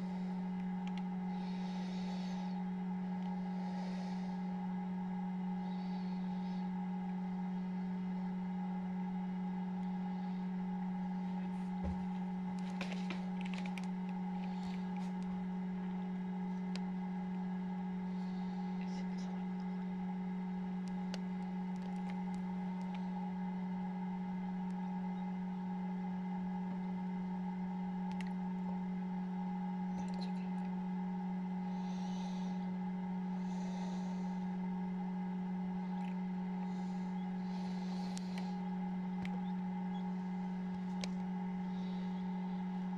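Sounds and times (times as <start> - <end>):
faint clicks and scratches: 0.0 - 2.6, 11.3 - 17.5, 20.7 - 23.2, 35.9 - 42.9
incubator electric hum: 0.0 - 42.9
faint clicks: 0.6 - 1.1, 28.1 - 28.7, 40.7 - 41.3.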